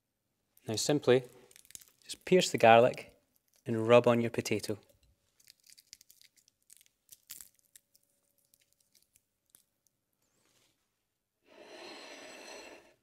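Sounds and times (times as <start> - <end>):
garlic skins crackling: 0.6 - 3.8, 5.3 - 9.9
breathy rush of noise: 11.5 - 13.0.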